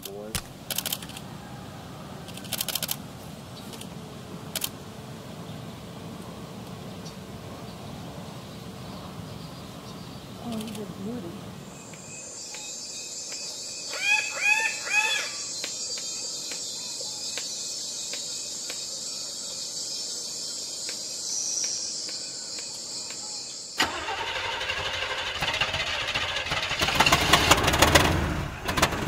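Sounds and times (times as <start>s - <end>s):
insects droning: 0.0s - 28.1s
bird calls: 5.3s - 23.8s
vehicle engine rattling: 23.9s - 29.0s.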